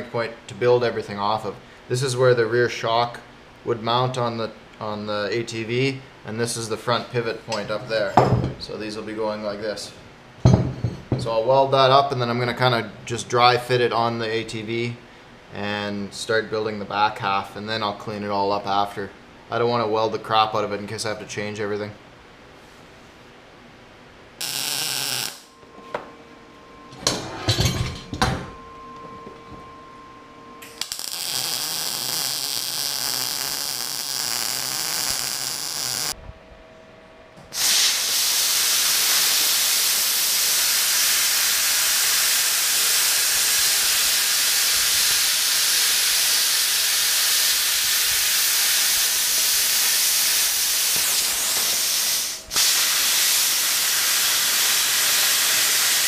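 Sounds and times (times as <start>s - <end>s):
plasma cutter hissing: 24.4s - 25.5s, 30.6s - 36.1s, 37.5s - 56.0s.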